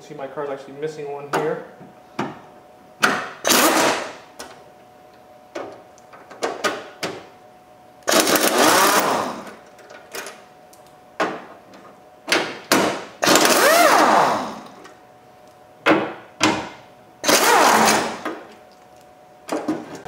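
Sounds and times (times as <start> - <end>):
pneumatic impact wrench bursts: 3.4 - 4.2, 8.1 - 9.6, 12.9 - 14.8, 17.2 - 18.2.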